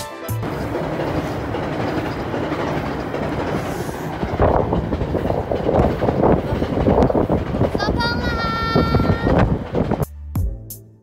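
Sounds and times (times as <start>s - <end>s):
train wheels clattering on rails: 0.3s - 10.1s
voices: 7.7s - 9.5s.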